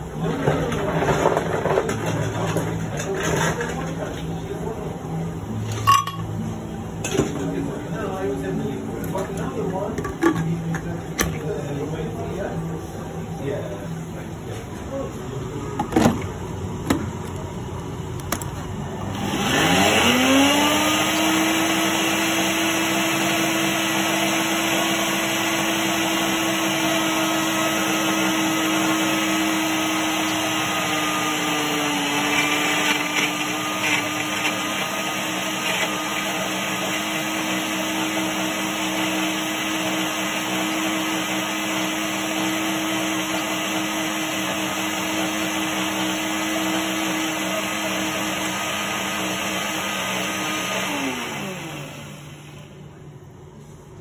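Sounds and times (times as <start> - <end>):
blender motor whine: 19.0 - 52.8.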